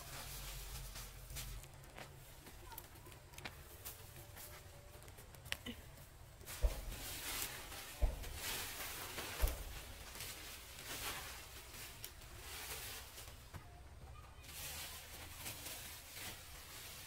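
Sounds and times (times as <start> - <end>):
plastic sheeting rustling: 0.0 - 17.0
dull thumps: 6.4 - 10.3.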